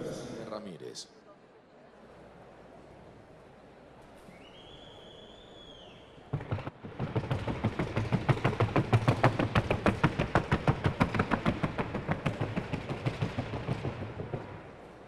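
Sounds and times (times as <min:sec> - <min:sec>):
horse hooves on wooden board: 0:06.3 - 0:15.0.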